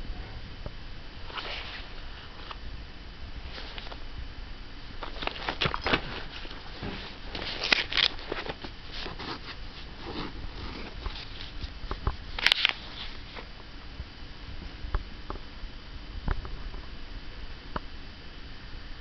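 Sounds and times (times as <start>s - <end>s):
paper rustling and crinkling: 1.3s - 2.6s, 3.5s - 4.0s, 5.0s - 13.5s.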